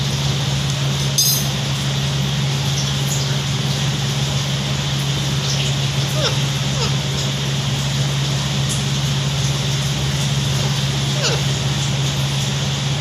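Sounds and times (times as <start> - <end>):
air cooler fan humming: 0.0 - 13.0
metallic clink on steel plate: 1.2 - 1.6
parakeets chirping: 5.2 - 13.0.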